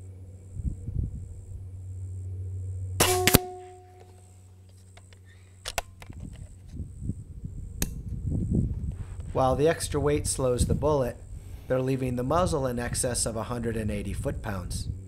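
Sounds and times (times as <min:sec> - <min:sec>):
air rifle shot: 0:03.0 - 0:03.9
rifle action clicks: 0:05.0 - 0:06.4.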